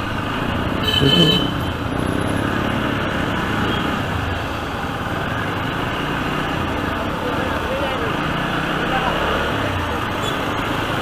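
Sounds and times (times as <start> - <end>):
motorcycle riding noise: 0.0 - 11.0.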